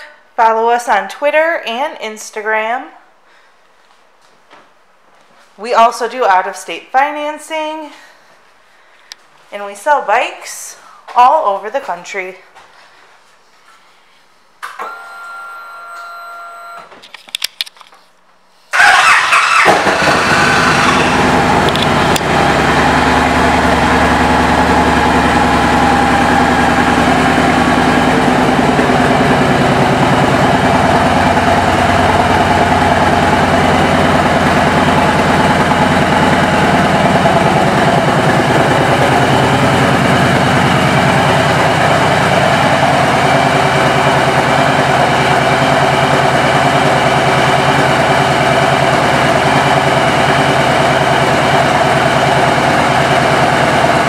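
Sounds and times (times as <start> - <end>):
motorcycle engine idling: 18.8 - 54.0.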